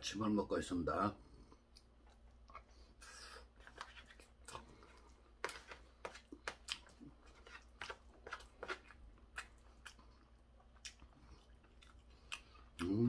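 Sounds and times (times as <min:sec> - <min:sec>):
chewing crunchy cartilage: 0:03.6 - 0:13.0.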